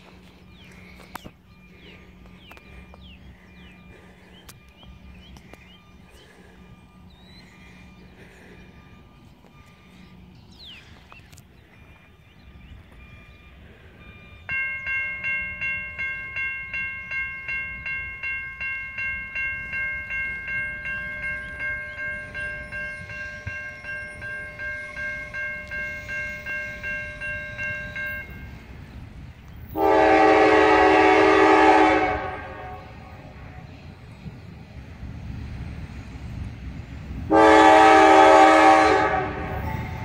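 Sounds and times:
railroad crossing bell dinging: 0.0s - 40.0s
train horn long blast: 29.7s - 33.8s, 37.2s - 40.0s.

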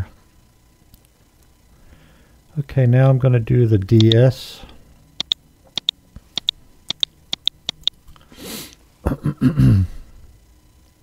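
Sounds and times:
breath: 1.7s - 2.4s
computer mouse clicking: 4.0s - 4.2s, 5.2s - 8.0s.

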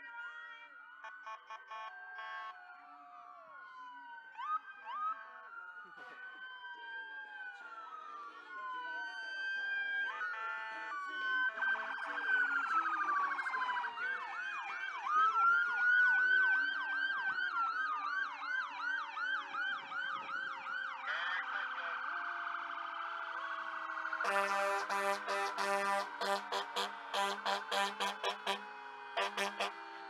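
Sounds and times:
sirens wailing: 0.0s - 30.0s
siren yelping: 1.0s - 30.0s
siren warbling: 21.0s - 30.0s.

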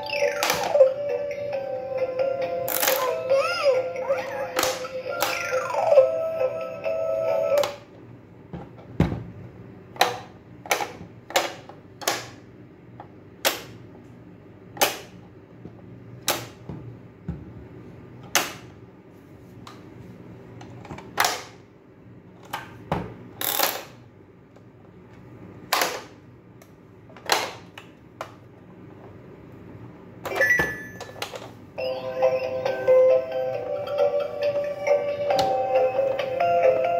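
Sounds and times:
plastic toy clicks and snaps: 10.0s - 12.4s.

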